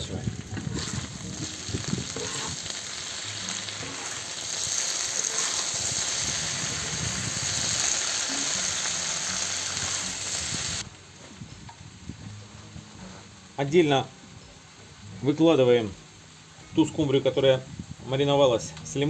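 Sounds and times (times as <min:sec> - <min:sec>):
potatoes sizzling in hot oil: 0:00.0 - 0:10.9.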